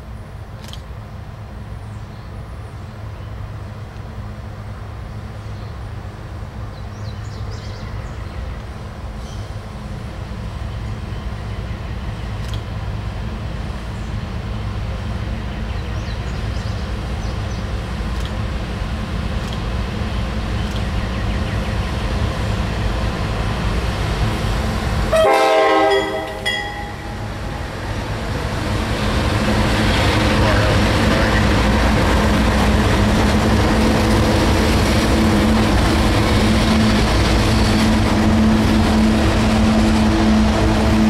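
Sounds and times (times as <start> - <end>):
diesel locomotives rumbling: 0.0 - 41.0
train horn blast: 25.1 - 27.3.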